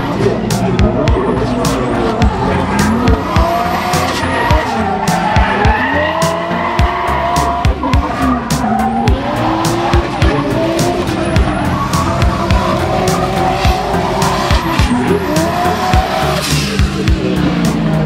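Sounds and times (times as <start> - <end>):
car engine revving: 0.0 - 18.0
music with steady beat: 0.0 - 18.0
tyres screeching: 0.0 - 18.0.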